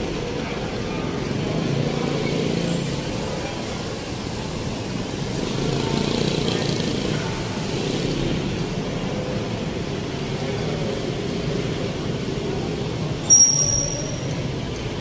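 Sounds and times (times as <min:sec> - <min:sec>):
street traffic passing: 0:00.0 - 0:15.0
high-pitched squeal: 0:13.3 - 0:14.6.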